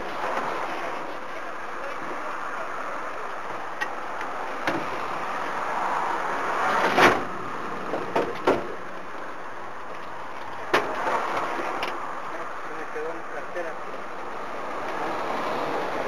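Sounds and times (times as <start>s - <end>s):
sliding door slamming shut: 6.7s - 8.8s.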